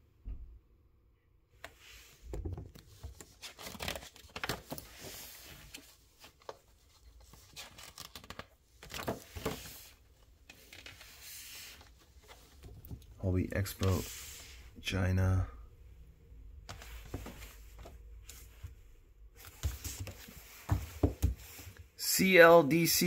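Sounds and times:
page turns: 1.6 - 13.0, 16.7 - 18.5, 19.4 - 21.7
magazine pages rustling: 1.6 - 14.6, 16.6 - 18.7, 19.4 - 21.8.

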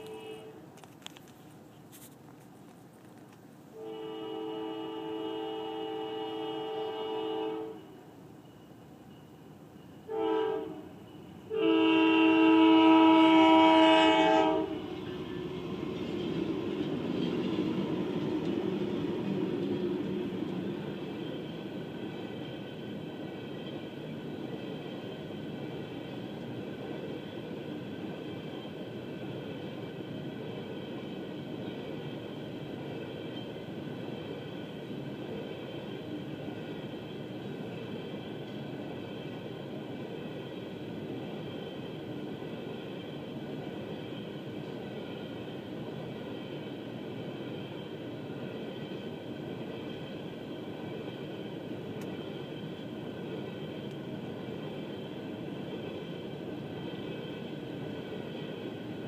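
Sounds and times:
locomotive air horn blast: 0.0 - 0.7, 3.7 - 8.0, 10.1 - 14.9
locomotive passing: 10.9 - 59.0
freight cars rolling by: 14.4 - 59.0.

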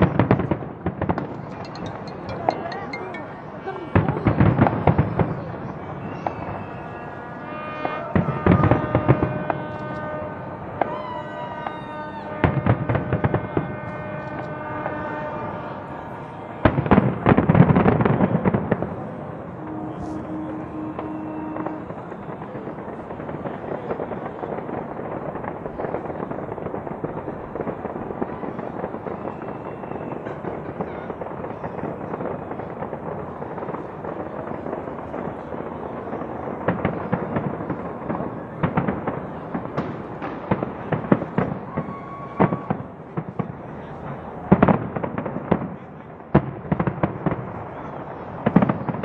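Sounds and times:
fireworks booms and pops: 0.0 - 2.1, 7.8 - 15.7, 16.6 - 49.0
music playing: 1.6 - 3.8.

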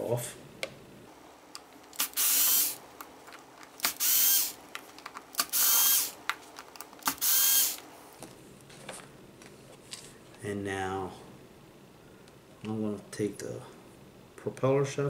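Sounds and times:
cordless screwdriver running: 2.0 - 2.8, 3.8 - 4.6, 5.4 - 6.2, 7.0 - 7.8.

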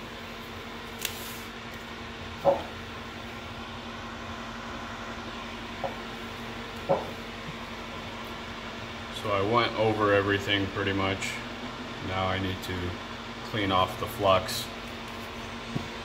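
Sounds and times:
steady low hum: 0.0 - 16.0
knocks and clicks on workbench: 2.4 - 2.7, 6.9 - 7.2.

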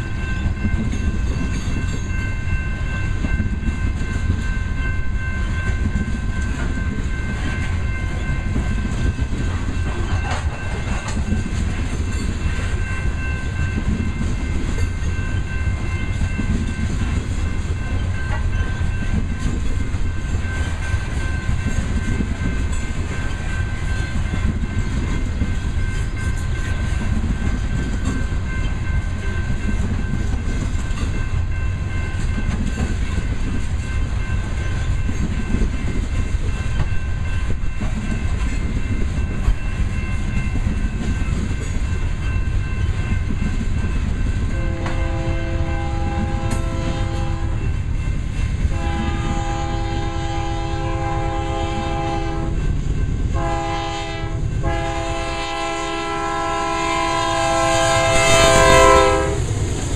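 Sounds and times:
train wheels rumbling on rails: 0.0 - 59.9
wheels clicking over rail joints: 5.5 - 45.1
locomotive air horn blast: 44.6 - 47.6, 48.7 - 52.6, 53.4 - 59.5.

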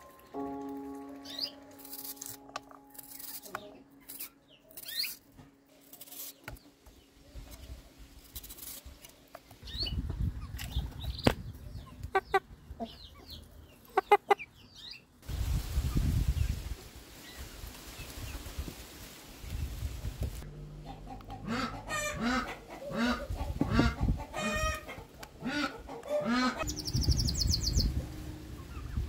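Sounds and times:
knife cutting onion: 1.8 - 5.2
small birds chirping: 2.9 - 15.2, 25.8 - 29.0
rooster clucking: 13.9 - 14.5, 20.8 - 26.7
low rumble: 26.6 - 29.0.

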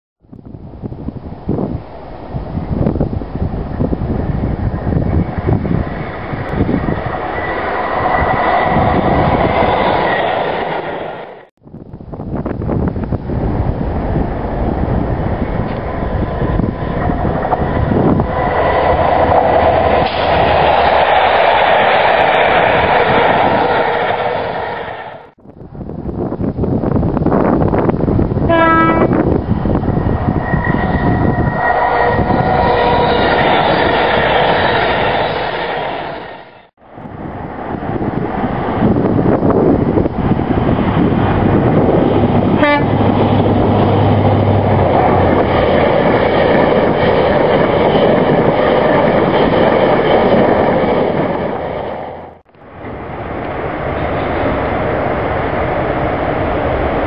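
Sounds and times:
diesel train passing at speed: 0.2 - 57.0
wind buffeting microphone: 0.2 - 57.0
train horn note: 28.5 - 29.2, 42.6 - 43.0.

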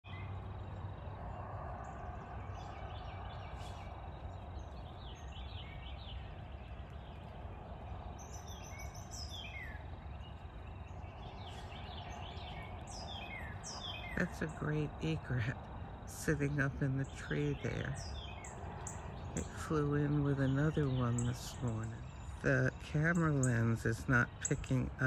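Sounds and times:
songbirds chirping and singing: 0.0 - 25.0
low background noise: 0.1 - 25.0.

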